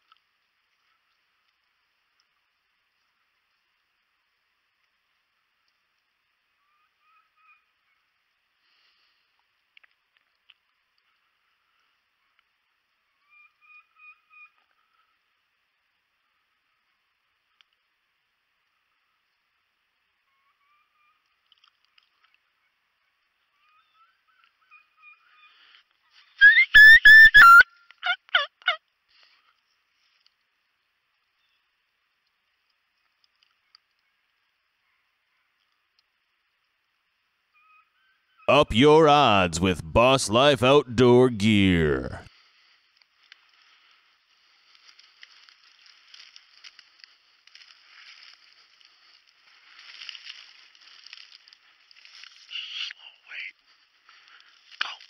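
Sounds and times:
wild turkey yelping: 26.4 - 28.8
dry corn stalks rustling: 42.5 - 52.5.

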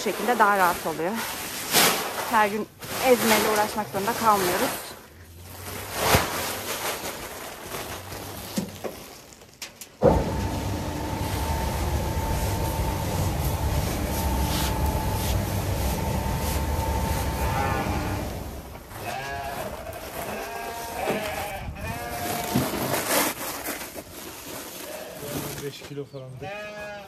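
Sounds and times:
sheep bleating: 17.4 - 18.4, 19.0 - 22.5, 26.4 - 27.0.

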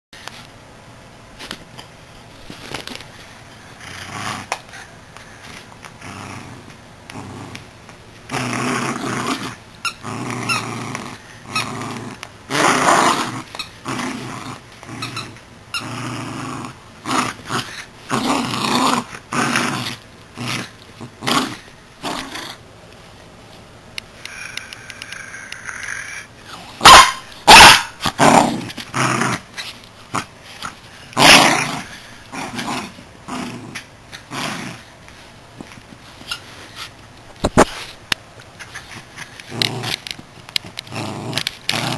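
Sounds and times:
dog play-growling: 2.6 - 22.6, 24.2 - 37.8, 38.6 - 41.9.

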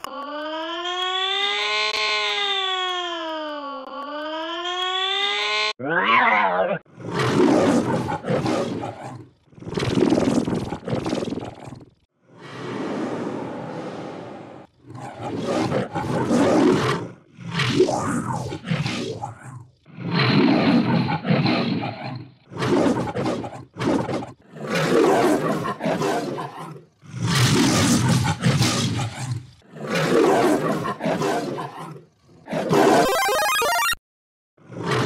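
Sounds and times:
altered lion roars: 5.8 - 11.0, 11.6 - 32.9.

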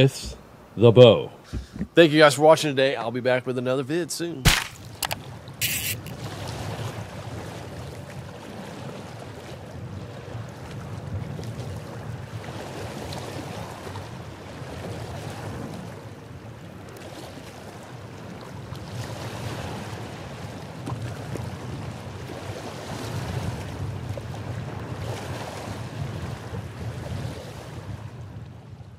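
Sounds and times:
waves lapping on rocky shore: 4.4 - 28.4
wind buffeting microphone: 18.1 - 28.9.

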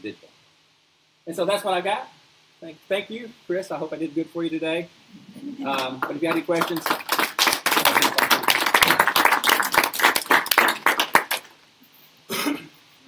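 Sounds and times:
audience applauding: 5.7 - 11.6.

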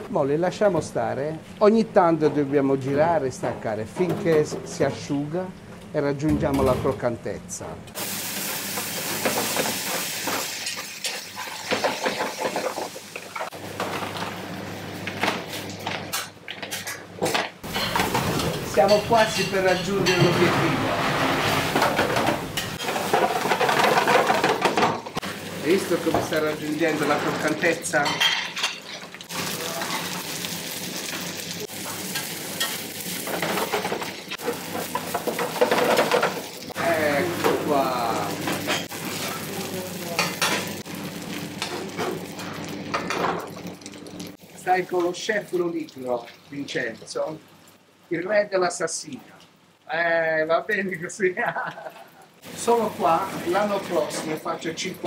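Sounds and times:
pasta sizzling in a pan: 8.0 - 15.8, 22.6 - 48.6, 51.5 - 55.0.

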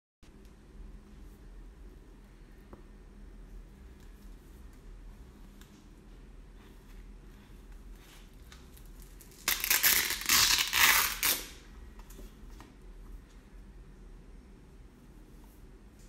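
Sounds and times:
plastic visor crinkling: 8.4 - 11.6.

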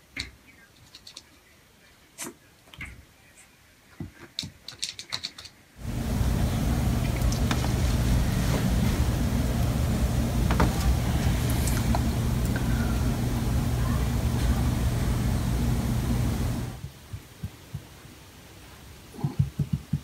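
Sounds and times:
low mechanical hum: 5.8 - 16.9.

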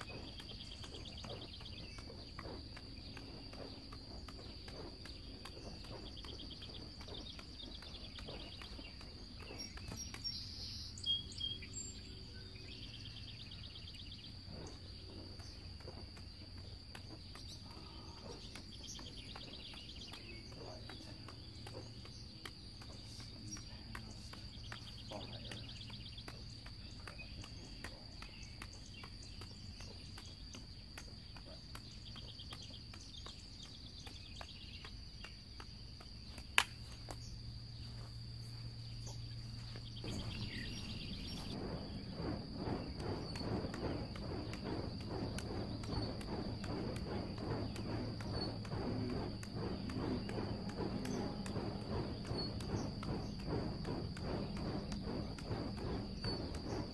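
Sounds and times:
bird chirps: 0.0 - 56.9
high insect drone: 0.0 - 56.9
faint taps of torches caught: 15.4 - 37.3.

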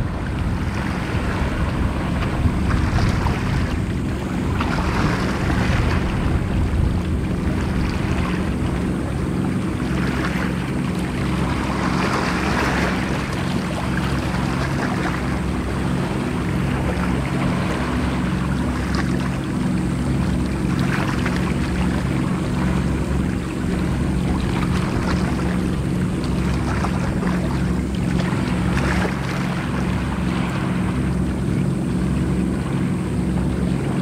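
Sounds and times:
wind buffeting microphone: 0.0 - 19.2
low engine hum: 0.0 - 34.0
waves washing: 0.0 - 34.0.

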